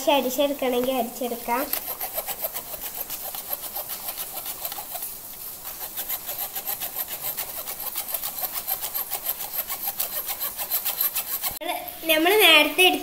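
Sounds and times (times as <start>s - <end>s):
spoon rasping through metal sieve: 1.5s - 11.6s.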